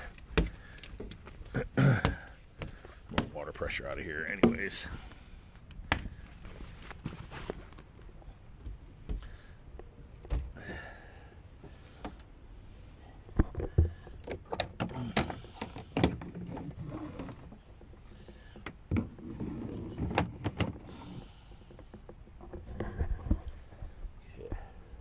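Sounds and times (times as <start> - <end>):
boat hardware clicking and knocking: 0.0 - 1.3, 4.3 - 4.7, 13.3 - 16.7, 18.2 - 19.2.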